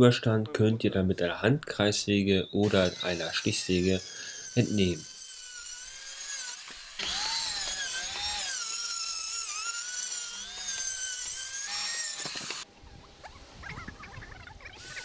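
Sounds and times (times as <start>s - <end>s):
circular saw cutting board: 2.6s - 12.7s.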